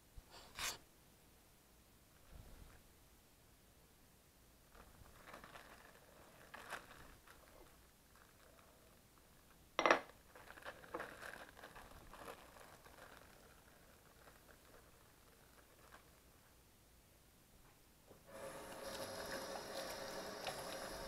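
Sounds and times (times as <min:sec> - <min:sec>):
rustling handling noise: 0:04.6 - 0:16.6.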